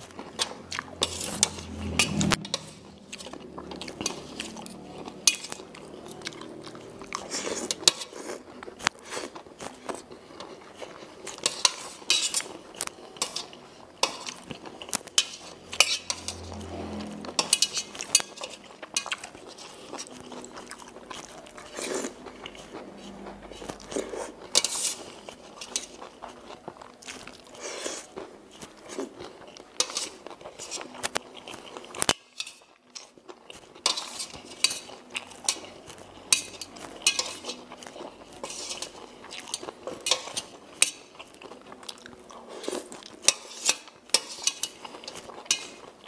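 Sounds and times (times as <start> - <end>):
slurping noodles: 0.0 - 26.5, 37.2 - 40.7, 42.3 - 45.9
chewing: 0.0 - 46.0
cutlery clinking on metal plate: 11.3 - 12.5, 13.2 - 16.7, 17.4 - 20.2, 24.5 - 26.0, 32.0 - 33.2, 33.8 - 35.7, 36.3 - 37.6, 38.3 - 41.2, 43.2 - 45.8.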